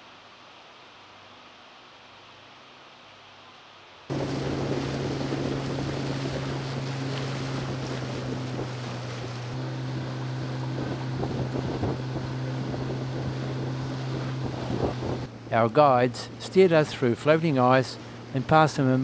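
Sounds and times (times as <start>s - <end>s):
wind buffeting microphone: 4.1s - 15.5s
outboard motor running: 4.1s - 19.0s
water splashing along hull: 4.1s - 19.0s.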